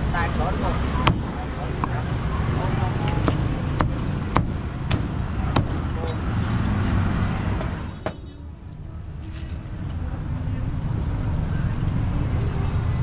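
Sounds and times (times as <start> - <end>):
cleaver chopping on wooden block: 3.1 - 5.8.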